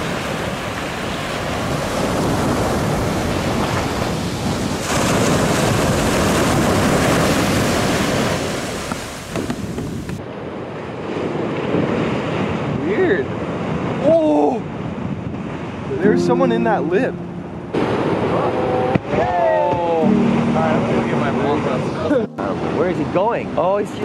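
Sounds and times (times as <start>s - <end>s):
wind buffeting microphone: 0.0s - 17.0s
surf rushing: 0.0s - 24.0s
waves crashing: 0.0s - 24.0s.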